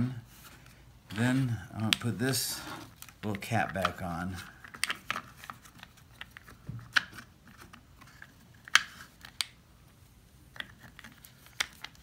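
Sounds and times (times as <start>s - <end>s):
nylon line rubbing on plastic: 0.3s - 4.6s.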